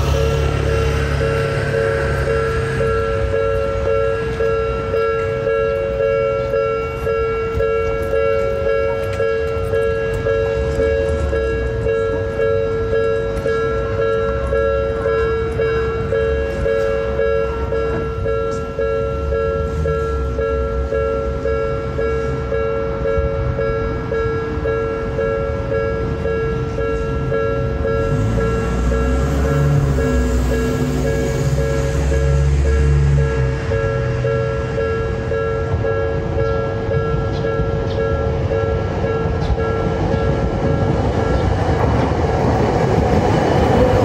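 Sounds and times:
level-crossing alarm ringing: 0:00.0 - 0:44.0
tram rumbling: 0:00.0 - 0:44.0.

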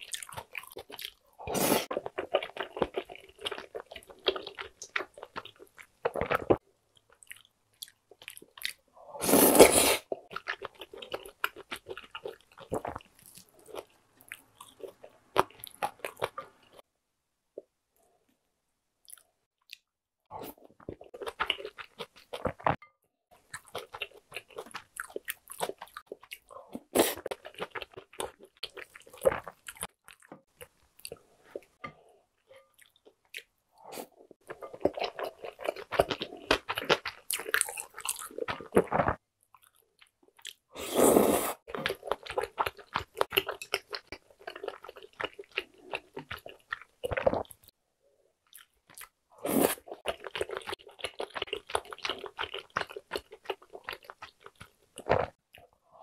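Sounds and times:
chewing and biting food: 0:00.0 - 0:01.2, 0:23.4 - 0:31.8, 0:34.4 - 0:40.6, 0:41.7 - 0:47.7, 0:48.5 - 0:55.7.

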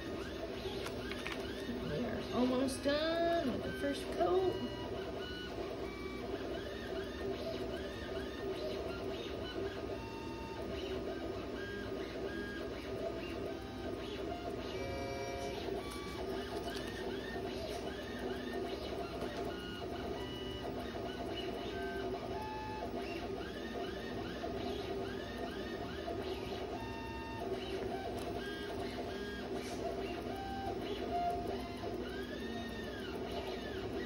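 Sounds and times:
machine humming with whines: 0:00.0 - 0:34.0.

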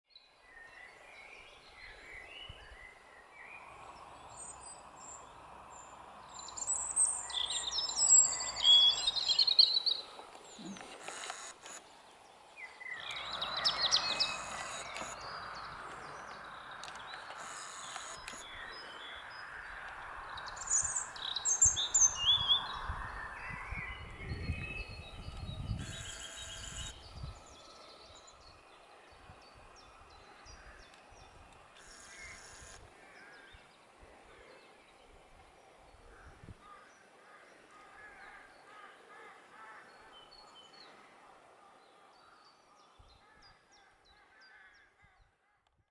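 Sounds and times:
birds singing and calling: 0:00.1 - 0:45.2.

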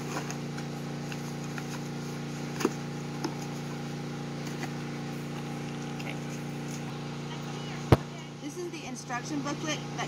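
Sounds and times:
cardboard packaging handled: 0:00.0 - 0:06.9
steady low hum: 0:00.0 - 0:10.0.

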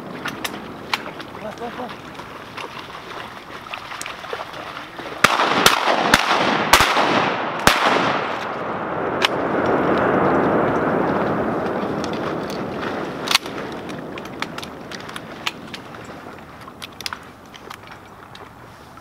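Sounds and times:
steady rushing noise: 0:04.6 - 0:18.0
shotgun shots: 0:05.2 - 0:09.6.

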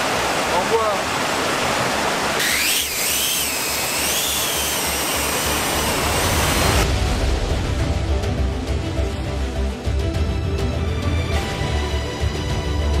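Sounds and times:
drone motors whining: 0:02.4 - 0:06.8.

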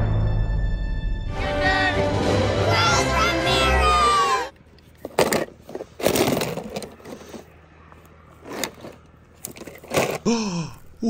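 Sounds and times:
toy cars knocking and scraping: 0:04.6 - 0:10.3.

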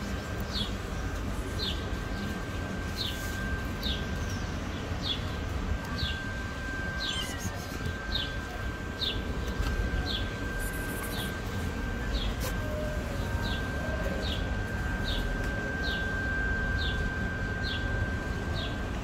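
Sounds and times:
low outdoor rumble: 0:00.0 - 0:19.0
faint high tone: 0:05.8 - 0:16.4.

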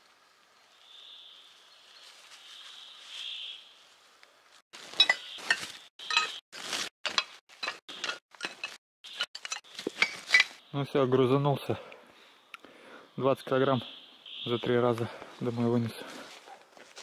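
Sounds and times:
scrap iron clanking: 0:07.1 - 0:10.6.

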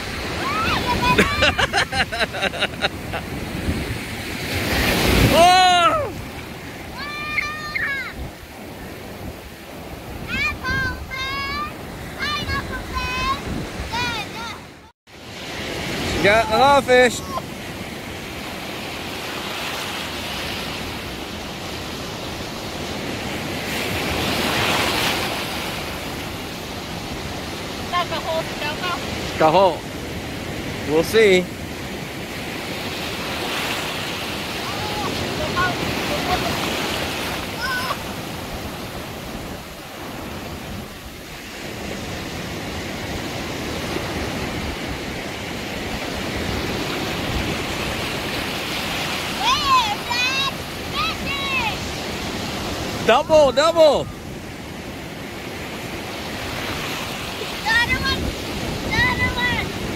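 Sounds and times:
ocean surf breaking: 0:00.0 - 0:59.9.

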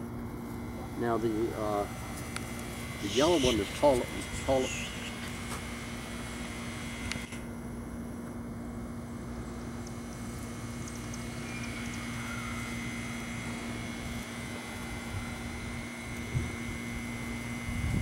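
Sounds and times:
faint outdoor background noise: 0:00.0 - 0:18.0
steady low hum: 0:00.0 - 0:18.0
faint high ticks: 0:10.8 - 0:12.1.

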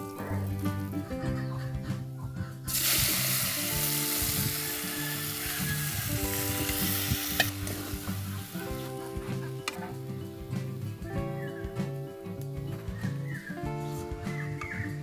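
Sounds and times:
soft background music: 0:00.0 - 0:15.0
greens sizzling in hot oil: 0:02.7 - 0:08.9.

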